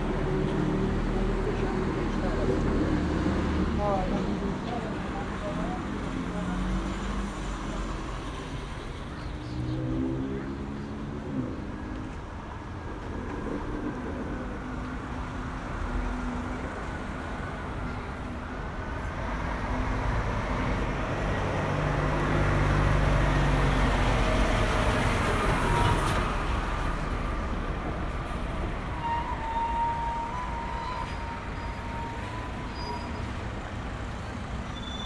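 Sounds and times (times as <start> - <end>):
lorry diesel engine rumble: 10.4 - 35.0.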